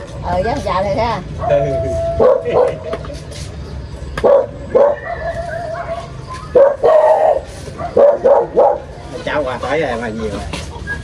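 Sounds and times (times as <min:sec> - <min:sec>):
dog barking: 0:01.4 - 0:02.9, 0:04.2 - 0:09.0.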